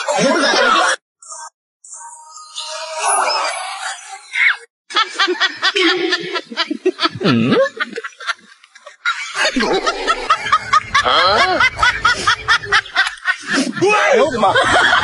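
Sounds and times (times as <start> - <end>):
snickering laughter: 0.0 - 1.0, 5.0 - 15.0.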